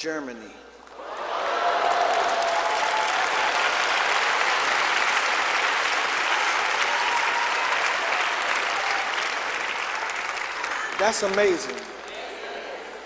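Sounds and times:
congregation applauding: 0.9 - 12.9.

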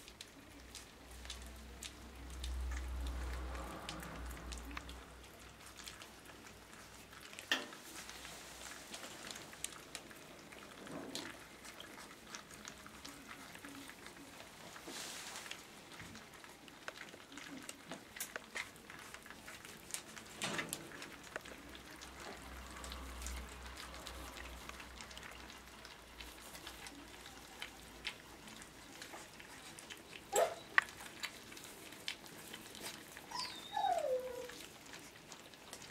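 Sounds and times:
puppies eating from a bowl: 0.0 - 35.9
puppy squeak: 33.3 - 34.5.

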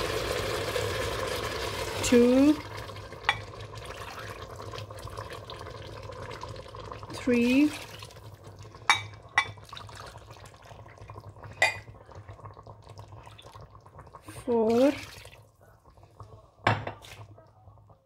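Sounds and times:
liquid splashing into pot: 0.1 - 17.3
measuring cup clinking on pot: 8.9 - 9.6, 11.6 - 11.9.

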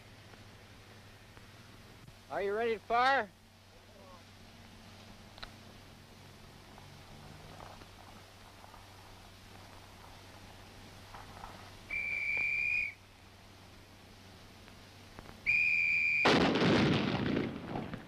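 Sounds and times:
whistle blasts: 11.9 - 13.0, 15.4 - 16.4
recoilless rifle firing blast: 16.2 - 18.0.

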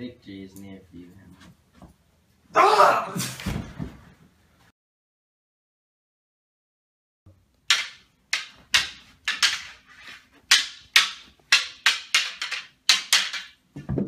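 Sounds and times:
prop swords clashing: 7.6 - 14.0.

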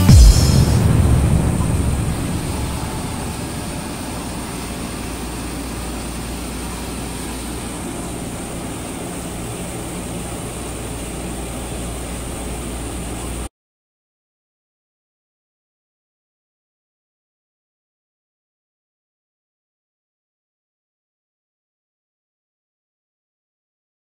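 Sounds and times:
sanding machine droning: 0.0 - 11.7.

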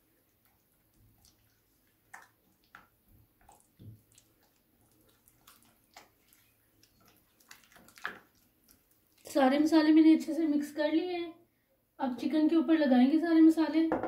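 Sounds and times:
wet squelching of stirred marinade: 0.0 - 10.0.

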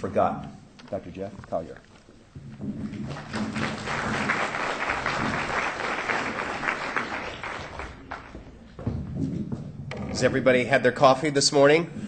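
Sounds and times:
audience applauding: 3.0 - 8.5.

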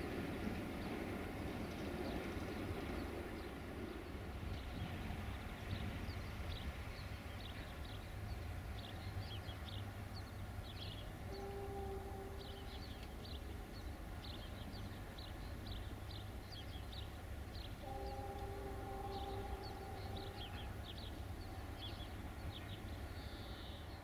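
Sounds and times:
birds chirping and twittering: 0.6 - 24.0
distant train horn: 10.8 - 15.1, 17.6 - 23.8.

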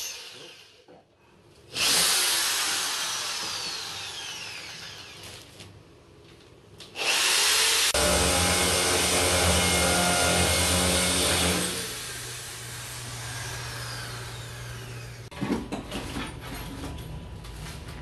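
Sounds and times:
tools knocking and rustling: 15.3 - 18.0.

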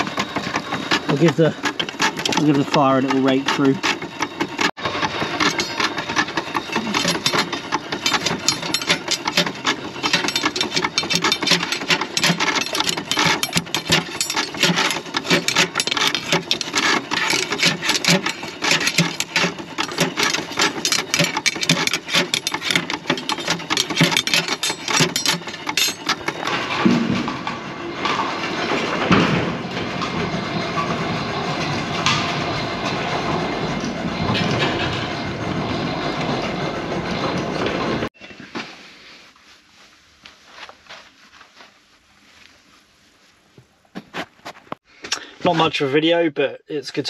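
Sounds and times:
metal rake scraping grate bars: 0.0 - 27.3.

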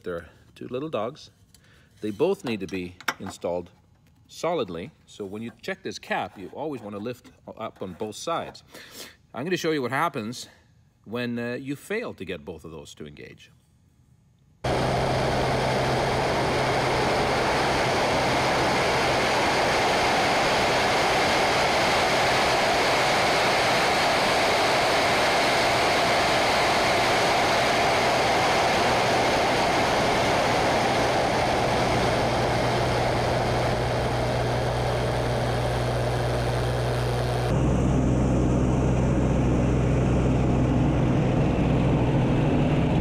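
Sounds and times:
propeller plane engine: 14.6 - 43.0.

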